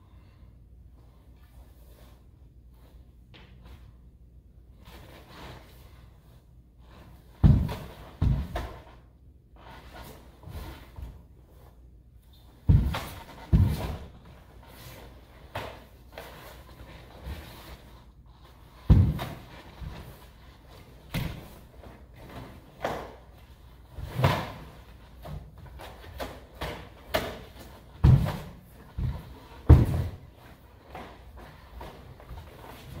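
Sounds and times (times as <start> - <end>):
bare feet stamping on wooden floor: 7.4 - 8.8, 12.7 - 14.2, 28.0 - 30.3.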